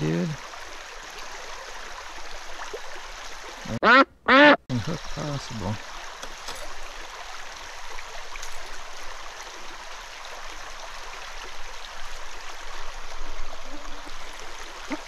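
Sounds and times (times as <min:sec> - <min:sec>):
stream water flowing: 0:00.0 - 0:03.8, 0:04.7 - 0:15.0.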